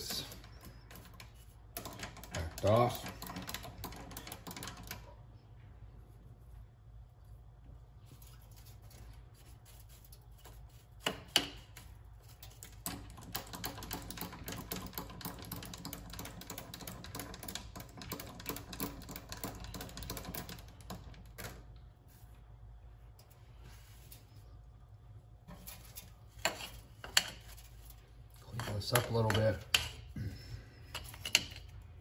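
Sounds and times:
lathe handwheel clicking and rattling: 1.8 - 5.1, 12.8 - 21.2.

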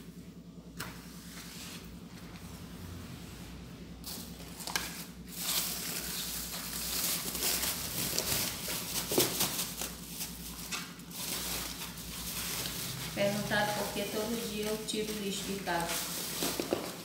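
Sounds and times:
plastic bag crinkling: 4.1 - 17.0.

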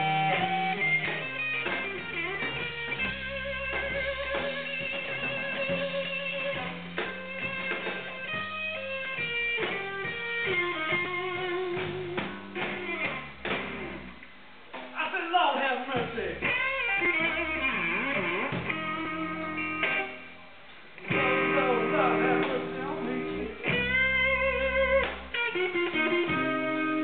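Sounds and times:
live band playing: 0.0 - 14.1, 16.0 - 20.4, 21.0 - 27.0
electric guitar with vibrato: 0.0 - 14.9, 16.0 - 27.0.

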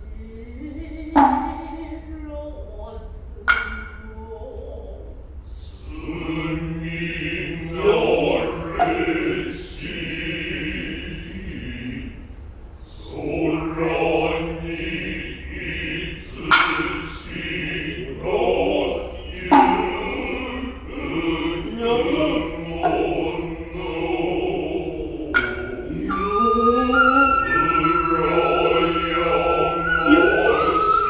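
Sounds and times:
chanting: 0.0 - 31.0
bamboo flute high tone: 8.7 - 9.4, 25.4 - 31.0
hand drum strikes: 19.5 - 20.0, 22.8 - 23.2, 25.3 - 25.9.

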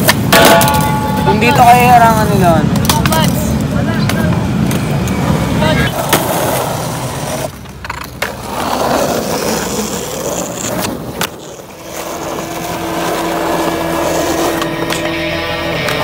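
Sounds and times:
skateboard landing clack: 0.0 - 1.3
skateboard wheels rolling on concrete: 0.0 - 16.0.

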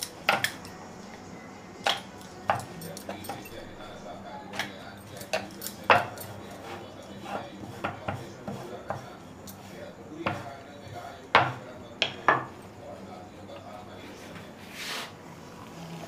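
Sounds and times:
kitchen utensils knocking: 0.0 - 0.7, 1.8 - 12.6.

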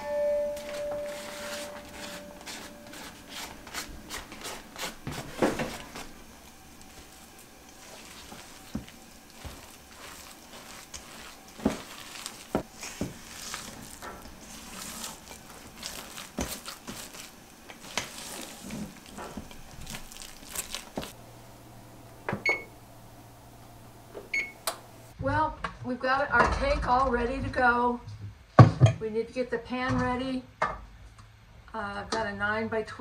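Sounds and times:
oven electronic beep: 0.0 - 3.0, 22.3 - 22.8, 24.2 - 25.1
spatula scraping batter: 0.6 - 21.2.

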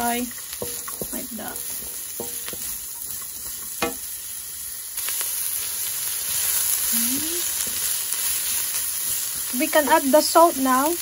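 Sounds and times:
vegetables sizzling in wok: 0.0 - 11.0.

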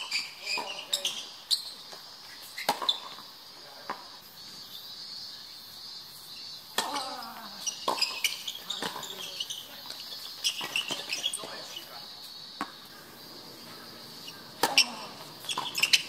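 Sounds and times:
tennis ball hits and bounces: 0.0 - 4.1, 6.7 - 11.8, 12.6 - 12.9, 14.2 - 16.0
high-pitched insect drone: 0.0 - 16.0.

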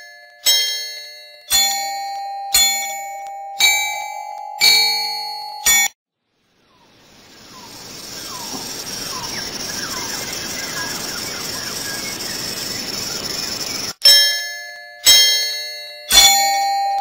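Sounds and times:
steady hissing ambience: 6.3 - 13.9.

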